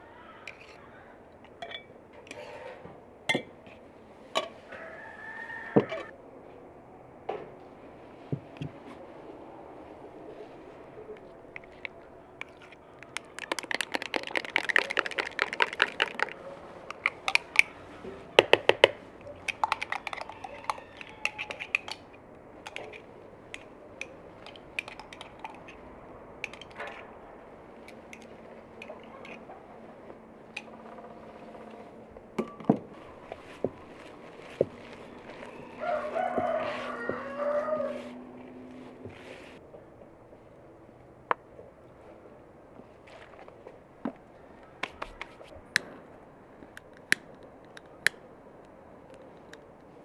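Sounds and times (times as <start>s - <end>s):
metal spoon clinking on glass: 1.6s - 1.9s
hands working dough in bowl: 10.4s - 25.8s, 32.5s - 38.2s.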